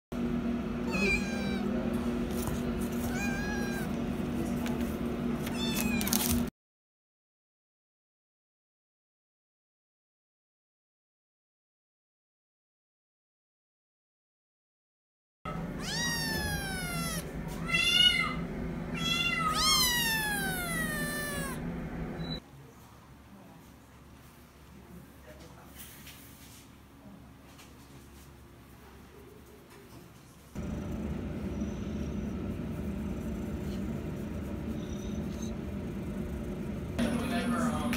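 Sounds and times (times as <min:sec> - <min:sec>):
cat meowing: 0:00.8 - 0:01.8, 0:03.0 - 0:04.0, 0:05.5 - 0:06.4, 0:15.5 - 0:21.6
steady low hum: 0:15.5 - 0:22.4, 0:30.4 - 0:37.9.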